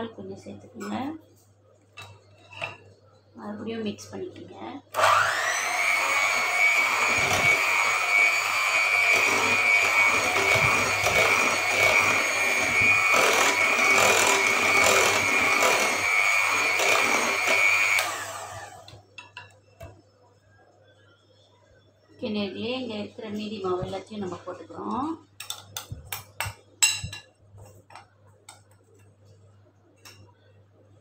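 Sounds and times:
electric hand mixer whine: 0:05.0 - 0:19.0.

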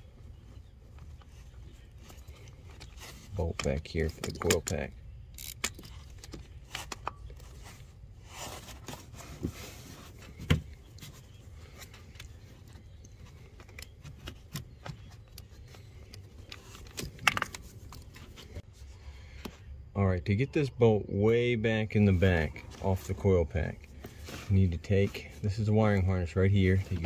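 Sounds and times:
ratchet clicks and scrapes: 0:03.6 - 0:07.1.

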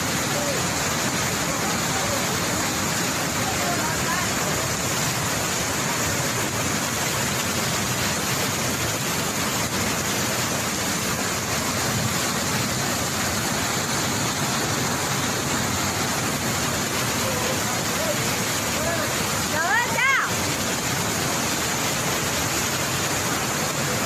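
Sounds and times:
floodwater rushing: 0:00.0 - 0:24.0.

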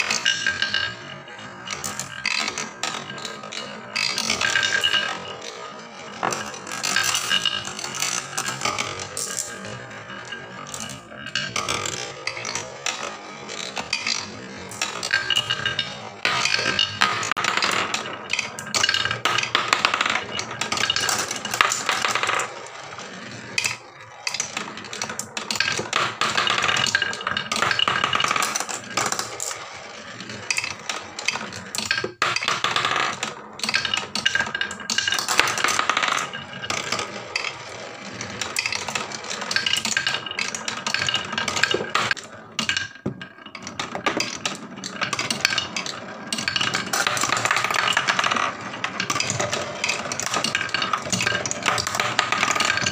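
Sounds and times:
marbles clattering down wooden tracks: 0:00.0 - 0:52.9.

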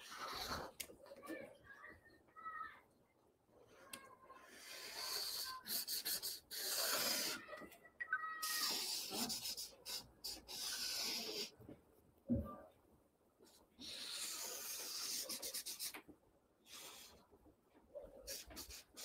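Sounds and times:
marker scratching on paper: 0:00.0 - 0:00.8, 0:04.3 - 0:07.4, 0:08.4 - 0:11.6, 0:13.5 - 0:16.1, 0:16.7 - 0:17.2, 0:18.2 - 0:19.0.

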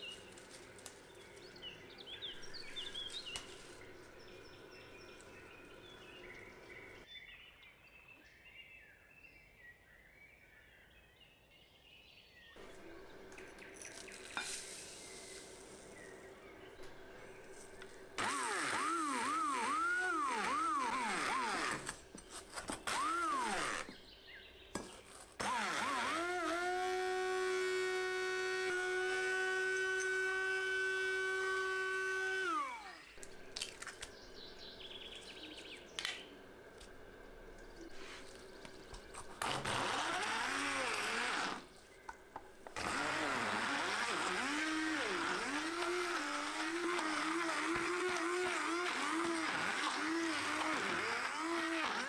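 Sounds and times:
stick blender whining: 0:16.9 - 0:24.0, 0:25.4 - 0:34.1, 0:39.0 - 0:41.8, 0:42.6 - 0:52.0.

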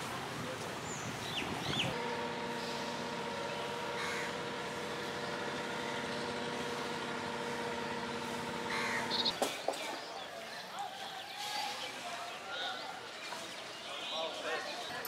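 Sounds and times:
crows cawing: 0:03.9 - 0:04.6, 0:08.7 - 0:09.3.

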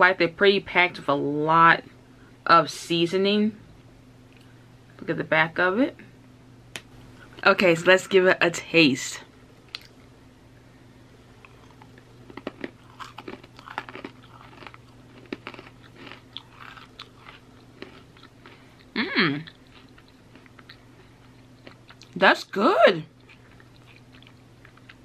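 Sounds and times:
pretzel crunching: 0:11.4 - 0:22.1
person humming mm: 0:19.0 - 0:19.4.

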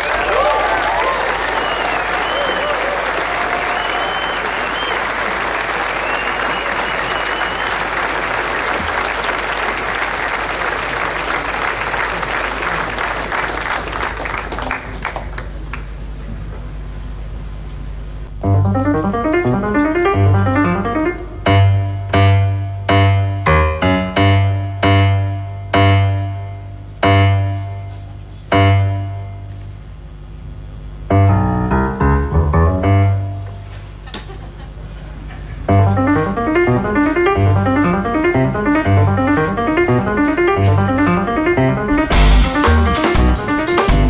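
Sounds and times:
audience applauding: 0:00.0 - 0:16.0
keyboard playing rapid notes: 0:18.4 - 0:27.7, 0:31.1 - 0:33.4, 0:35.7 - 0:44.0
low bass note: 0:18.4 - 0:27.7, 0:35.7 - 0:44.0
loud keyboard chords: 0:18.4 - 0:29.7, 0:30.9 - 0:33.7, 0:35.7 - 0:44.0.

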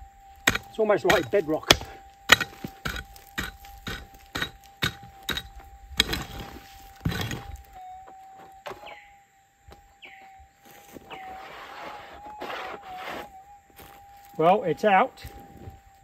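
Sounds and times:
bird chirps: 0:00.0 - 0:16.0
metal detector hum: 0:00.0 - 0:16.0
pick striking clay: 0:00.4 - 0:06.4.

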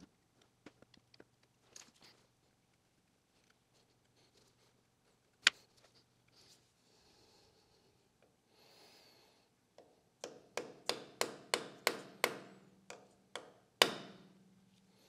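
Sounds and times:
small hammer tapping metal punch: 0:09.8 - 0:14.4.

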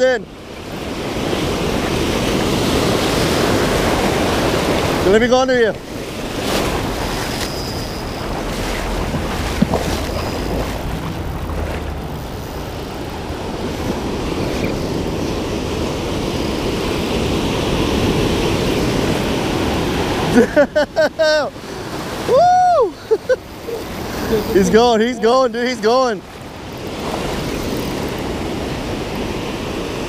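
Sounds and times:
surf breaking: 0:01.6 - 0:15.0
wind on microphone: 0:05.8 - 0:20.3.

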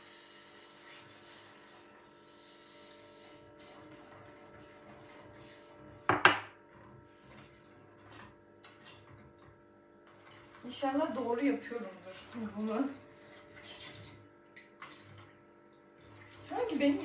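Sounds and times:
spoon knocking against pot: 0:06.1 - 0:06.5.

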